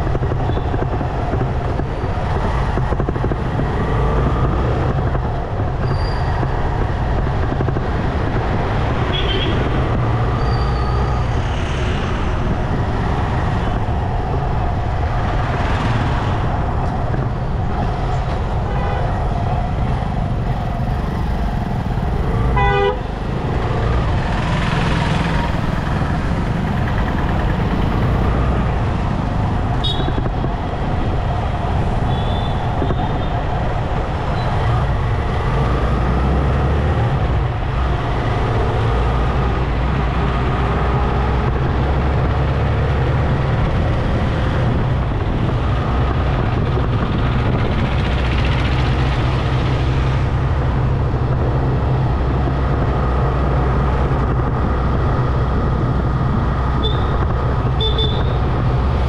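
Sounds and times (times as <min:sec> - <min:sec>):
traffic rumble and road noise: 0:00.0 - 0:59.0
vehicle horn blast: 0:22.6 - 0:23.1, 0:57.8 - 0:58.4.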